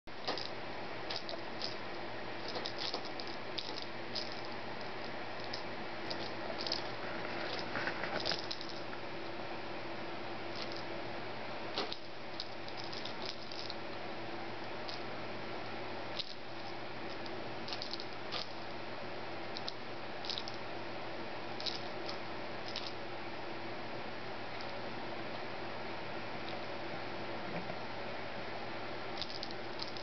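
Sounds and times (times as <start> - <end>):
faint hum: 0.0 - 30.0
kitten scratching and rustling: 0.2 - 9.0, 10.5 - 10.9, 11.7 - 13.8, 16.2 - 18.7, 29.2 - 30.0.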